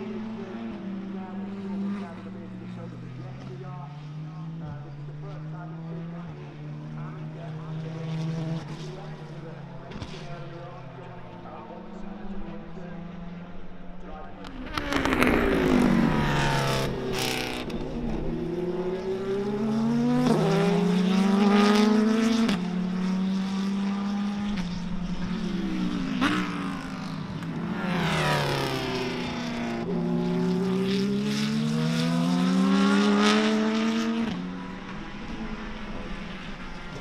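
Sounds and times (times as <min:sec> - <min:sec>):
race car engine shifting gears: 0:14.3 - 0:37.0.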